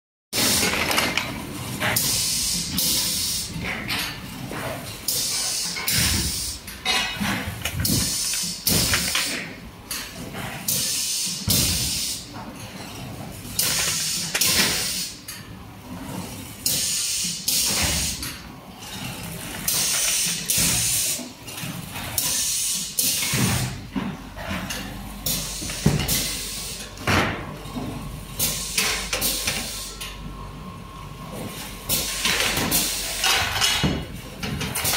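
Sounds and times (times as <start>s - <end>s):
metal parts knocking and clattering: 0.5s - 1.4s.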